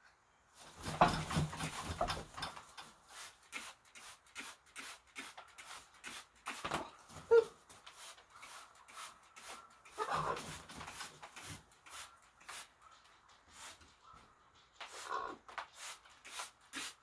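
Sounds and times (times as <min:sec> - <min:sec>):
spray bottle spritzes: 0:03.2 - 0:06.8, 0:15.6 - 0:17.0.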